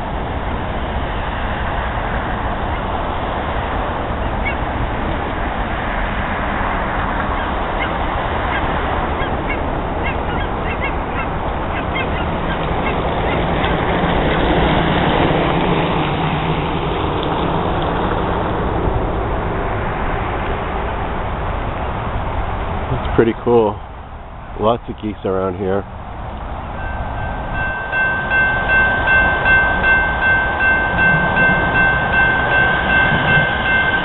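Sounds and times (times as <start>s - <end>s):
geese honking: 7.3s - 13.6s.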